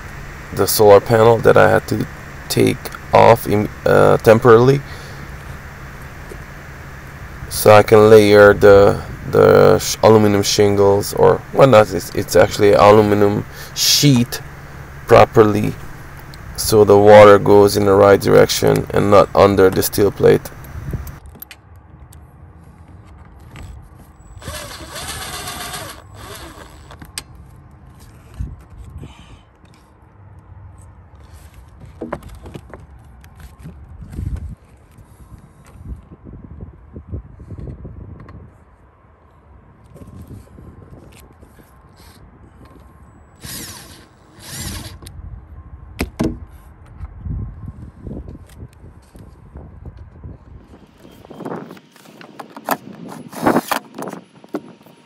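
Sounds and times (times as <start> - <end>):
power tool running: 0.0 - 17.5, 24.4 - 26.9, 43.4 - 45.0.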